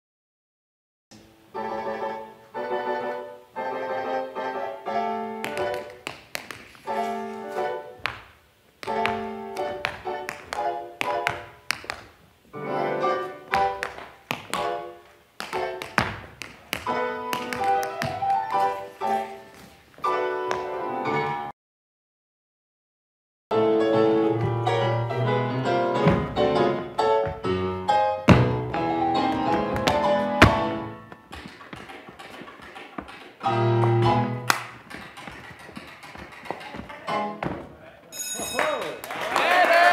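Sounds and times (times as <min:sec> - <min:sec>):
piano music: 0:01.3 - 0:06.1, 0:06.8 - 0:08.1, 0:08.8 - 0:11.8, 0:12.5 - 0:21.5, 0:23.5 - 0:31.6, 0:33.3 - 0:35.2, 0:36.7 - 0:37.6
tap shoes striking floor: 0:05.4 - 0:06.9, 0:08.0 - 0:12.2, 0:13.5 - 0:18.8, 0:26.0 - 0:26.4, 0:28.3 - 0:37.7
keyboard chords: 0:23.5 - 0:31.1.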